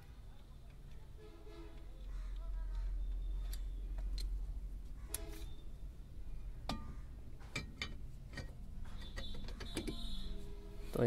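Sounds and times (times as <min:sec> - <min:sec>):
brake drum metallic clicks and knocks: 0:06.7 - 0:10.2.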